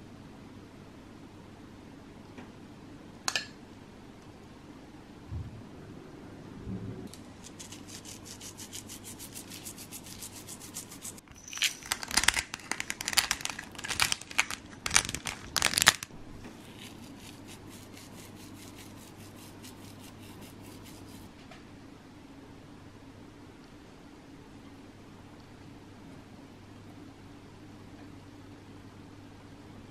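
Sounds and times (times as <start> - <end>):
seasoning rubbed between fingers: 7.1 - 14.5, 16.5 - 21.3.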